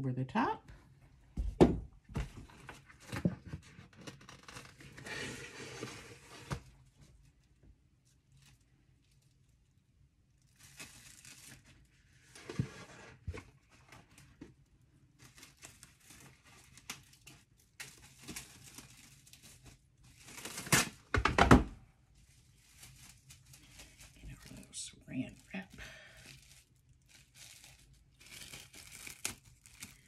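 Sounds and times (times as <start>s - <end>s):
plastic wrap crinkling: 2.6s - 21.2s, 21.8s - 30.0s
plastic wrap tearing: 3.8s - 7.3s, 10.4s - 12.4s, 15.1s - 21.2s, 22.2s - 30.0s.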